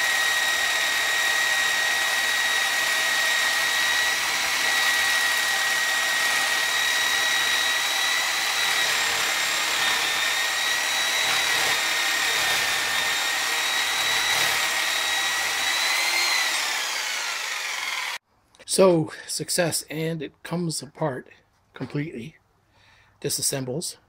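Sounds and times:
electric grinder whining: 0.0 - 18.2.

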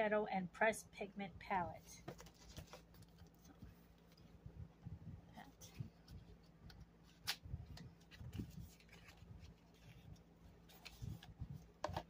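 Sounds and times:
faint low hum: 0.0 - 12.0
handling taps and rustles: 2.0 - 4.3, 10.7 - 12.0.

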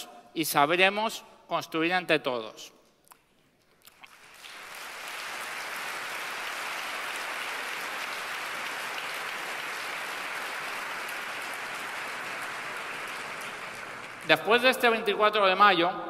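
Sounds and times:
large crowd applauding: 3.9 - 15.2.

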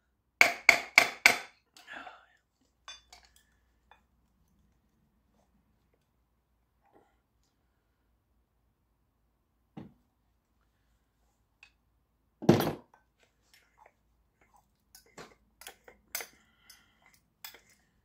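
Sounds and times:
small metallic clinks and taps: 2.7 - 4.8, 14.9 - 17.9.

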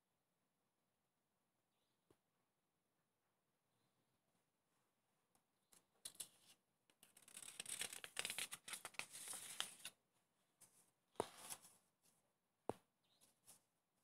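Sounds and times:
paper rustling and crinkling: 6.1 - 10.0, 10.6 - 11.8.

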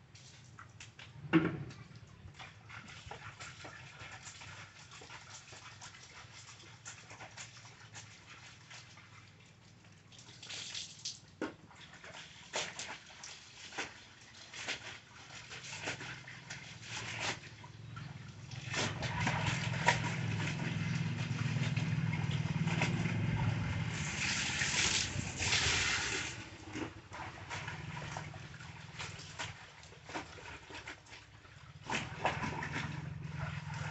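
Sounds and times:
water splashing and sloshing: 0.0 - 33.9
water pouring off garment: 10.1 - 11.4, 12.0 - 26.7.

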